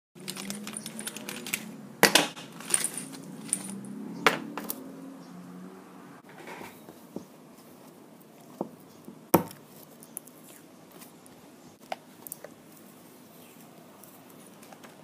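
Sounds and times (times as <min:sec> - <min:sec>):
objects clattering in pencil case: 0:00.2 - 0:04.0.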